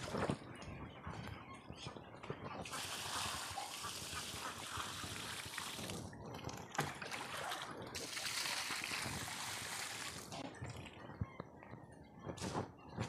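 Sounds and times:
water splashing onto ground: 0:06.9 - 0:10.4.

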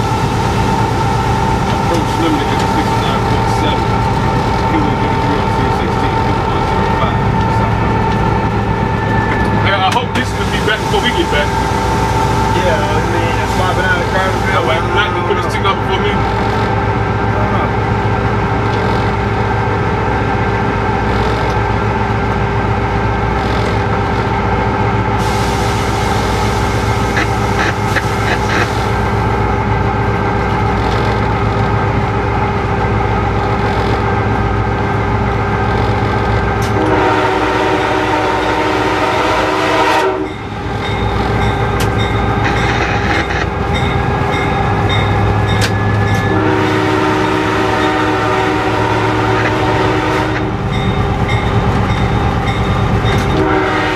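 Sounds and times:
locomotive running on rails: 0:00.0 - 0:53.9
locomotive horn blast: 0:25.2 - 0:29.2, 0:36.6 - 0:41.6, 0:42.3 - 0:50.8, 0:52.4 - 0:53.9.

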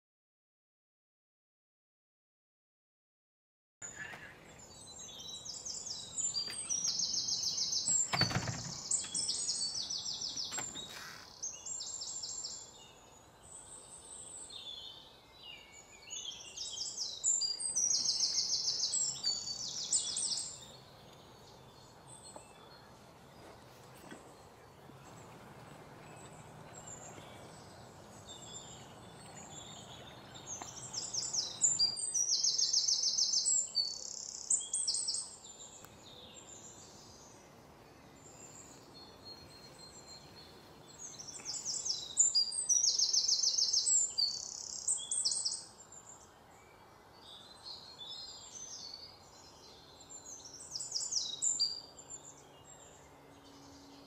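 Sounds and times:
bird chirps: 0:03.8 - 0:54.0
songbirds singing: 0:03.8 - 0:54.0.

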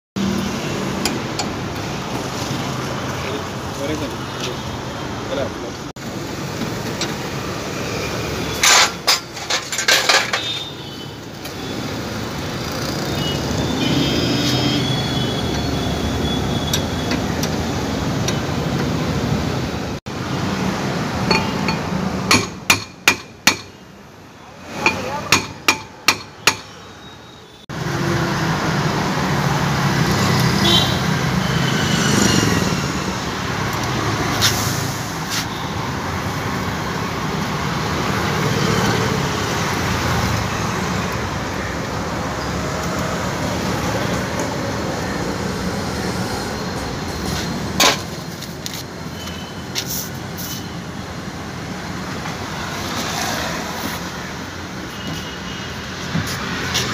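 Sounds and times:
street traffic noise: 0:00.2 - 0:56.9
hammer striking steel rod: 0:21.3 - 0:23.8, 0:24.8 - 0:26.8.

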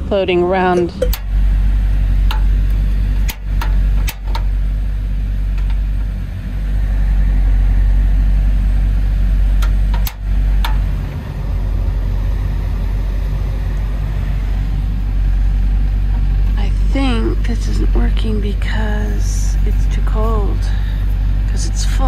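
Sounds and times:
van engine idling: 0:00.0 - 0:22.0
camp stove igniter clicks: 0:01.1 - 0:01.4, 0:02.2 - 0:04.5, 0:09.6 - 0:10.8.

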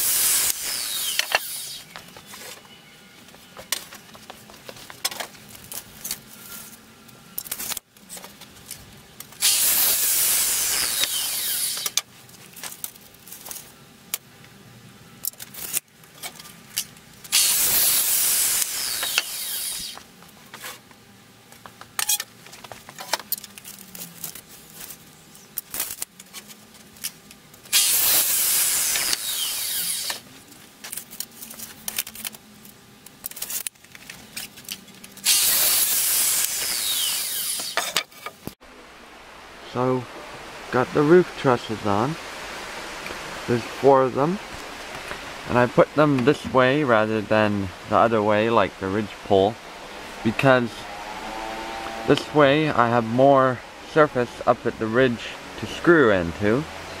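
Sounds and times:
miter saw cutting wood: 0:00.0 - 0:01.9, 0:09.4 - 0:12.0, 0:17.3 - 0:20.0, 0:27.7 - 0:30.3, 0:35.2 - 0:38.0, 0:48.8 - 0:57.0
saw blade spinning down: 0:00.0 - 0:01.9, 0:09.4 - 0:12.0, 0:17.3 - 0:20.0, 0:27.7 - 0:30.2, 0:35.2 - 0:37.9, 0:49.7 - 0:53.4.

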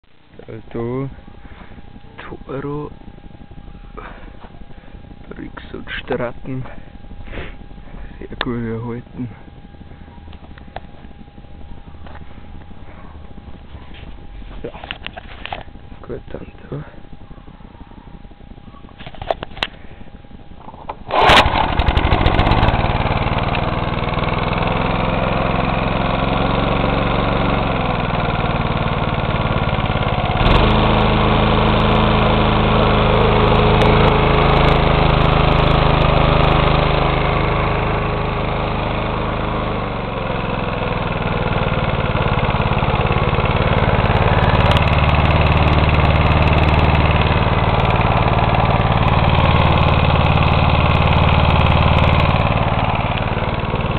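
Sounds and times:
lawn mower engine running: 0:00.1 - 0:53.9
lawn mower recoil starter pull: 0:19.0 - 0:19.8, 0:20.6 - 0:53.9.

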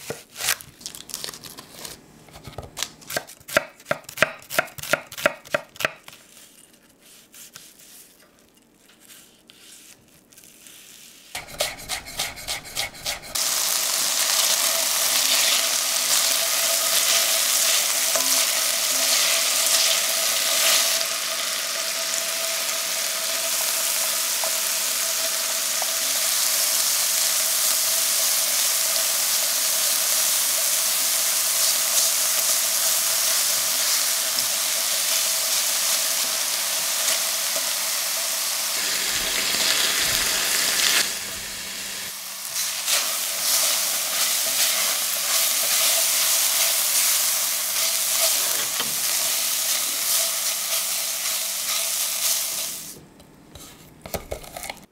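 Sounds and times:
spatula scraping pan: 0:11.4 - 0:13.4, 0:53.5 - 0:54.9
chicken sizzling in frying pan: 0:11.4 - 0:53.0.

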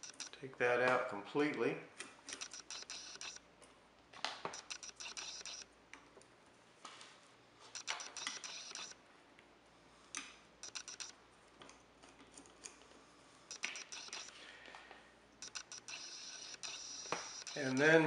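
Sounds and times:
screwdriver clicking on metal: 0:02.3 - 0:03.4, 0:13.5 - 0:14.4, 0:15.4 - 0:18.0.

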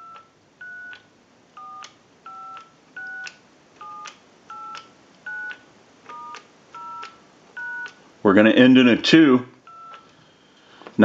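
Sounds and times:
keypad dialing beeps: 0:00.0 - 0:08.0, 0:09.6 - 0:10.1.

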